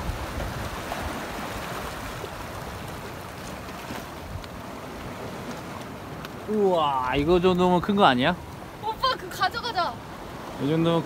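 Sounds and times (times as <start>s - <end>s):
wind on microphone: 0.0s - 3.1s
surf washing over rocks: 0.0s - 11.0s.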